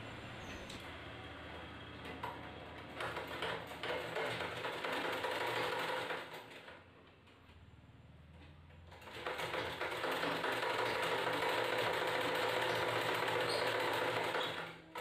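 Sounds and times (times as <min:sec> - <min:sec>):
sewing machine stitching: 0:02.0 - 0:06.8, 0:08.9 - 0:15.0.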